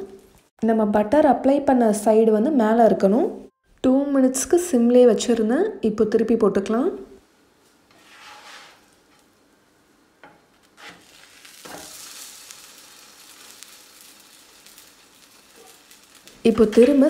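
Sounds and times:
spatula scraping a pan: 7.9 - 9.4, 10.2 - 17.0
butter sizzling in a pan: 7.9 - 17.0.

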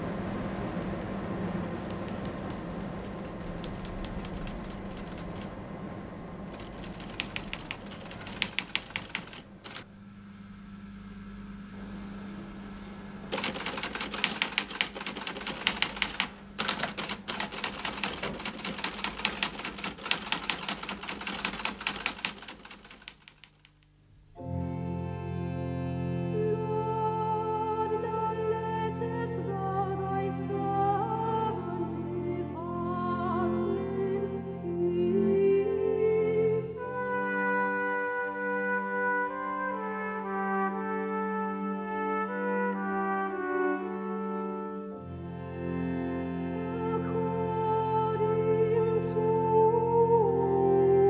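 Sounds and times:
ship engine droning: 0.0 - 13.4
teleprinter clattering: 0.7 - 5.5, 6.5 - 9.8, 13.3 - 23.8
sustained keyboard music: 6.4 - 9.9, 13.3 - 41.0.

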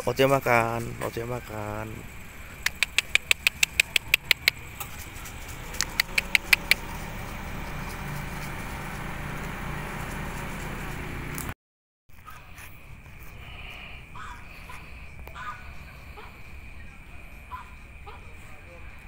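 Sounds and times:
traffic engine hum: 0.0 - 19.0
sharp mouth clicks: 2.6 - 4.6, 5.8 - 6.9.

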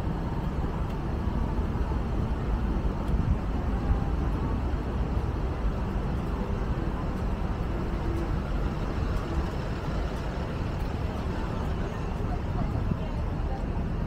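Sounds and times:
city street traffic rumble: 0.0 - 14.0.

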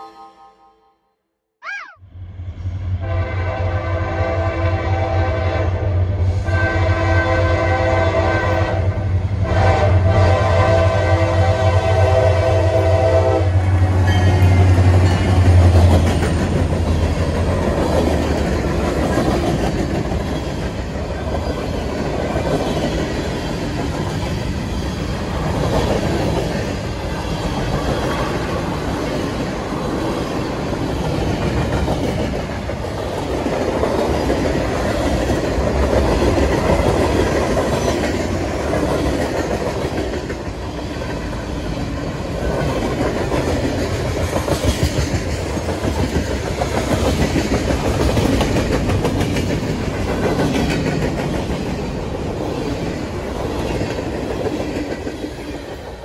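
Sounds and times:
train horn: 0.0 - 1.2, 2.8 - 14.3
freight cars rumbling on rails: 8.9 - 56.0.

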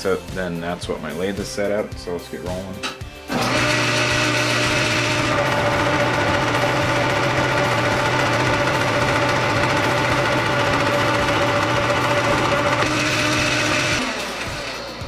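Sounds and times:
metal lathe cutting threads: 3.3 - 15.0.

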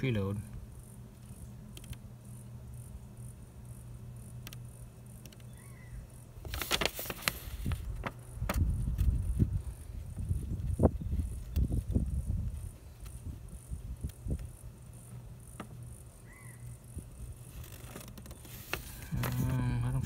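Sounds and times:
faint insects chirring: 0.0 - 20.0
steady low hum: 0.0 - 20.0
paper sheets rustling: 6.4 - 8.2, 17.5 - 19.7.

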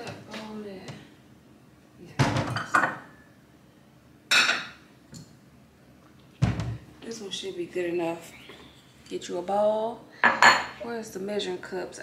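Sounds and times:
bowls and dishes clattering: 2.2 - 3.2, 10.2 - 10.8.

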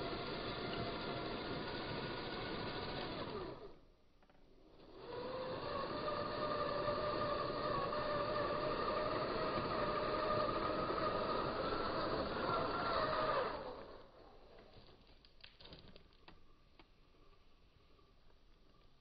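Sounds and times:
electric motors whining: 0.0 - 3.9, 4.6 - 14.8.

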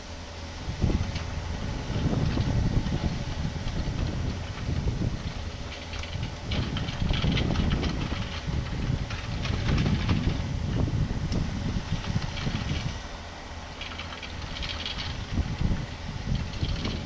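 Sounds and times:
excavator diesel engine under load: 0.0 - 17.0
bucket rattling on stones and gravel: 1.9 - 10.5, 13.8 - 15.6, 16.3 - 17.0.

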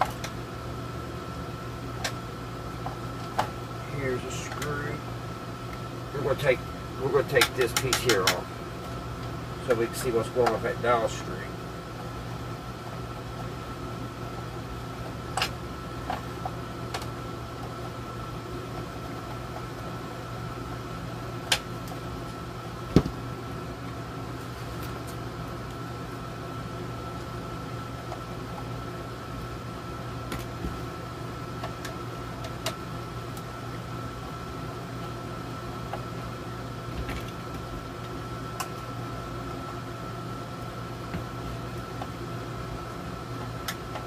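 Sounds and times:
air conditioner humming: 0.0 - 44.0
clicks and knocks of handled parts: 7.3 - 8.4.

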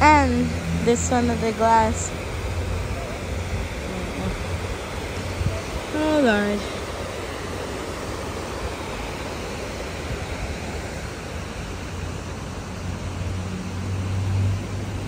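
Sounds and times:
waterfall rushing: 0.0 - 15.0.

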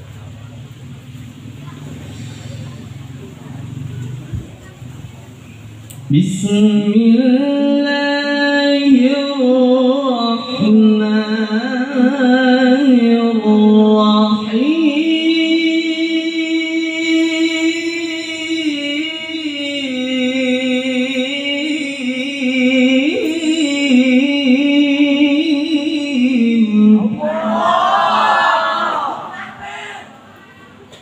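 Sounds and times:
man reciting through microphone: 5.9 - 27.5
listeners calling out together: 27.2 - 31.0.

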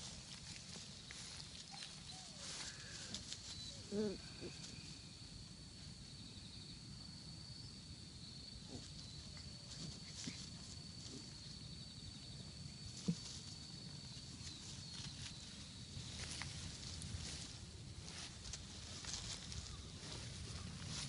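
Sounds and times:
puppies rustling in grass: 0.0 - 5.0, 8.8 - 11.7, 12.6 - 21.0
high insect trill: 0.0 - 21.0.

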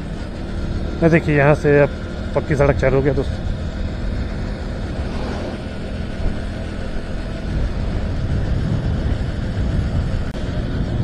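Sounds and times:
motorcycle engine rumble: 0.0 - 11.0
wind noise on microphone: 3.3 - 11.0.

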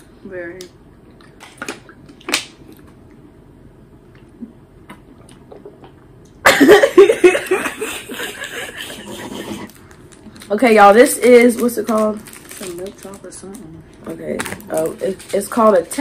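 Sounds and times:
people laughing: 6.5 - 9.7
plastic bottle crackling: 11.5 - 15.6.

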